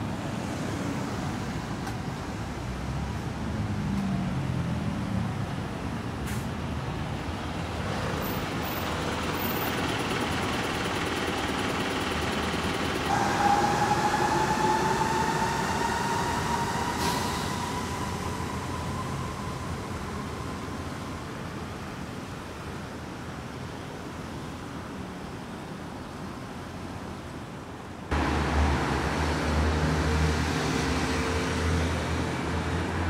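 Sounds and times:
cars passing slowly: 0.0s - 25.2s, 28.0s - 33.0s
vehicle whine rising in pitch: 11.7s - 22.4s.

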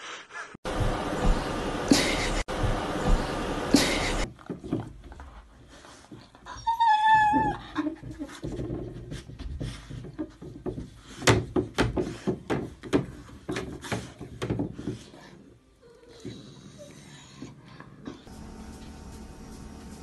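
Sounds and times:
dog whining: 6.5s - 8.0s.

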